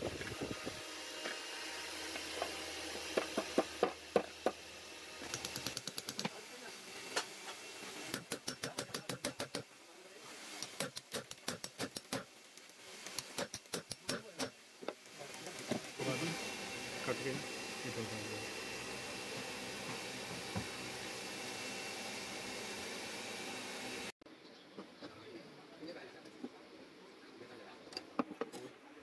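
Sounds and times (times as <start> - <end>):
hammer tapping on metal: 8.1 - 9.7.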